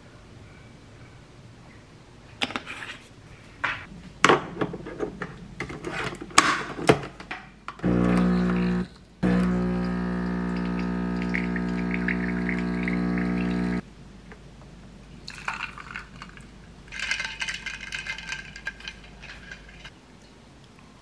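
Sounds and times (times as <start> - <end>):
coffee machine pump humming: 7.8 - 13.8.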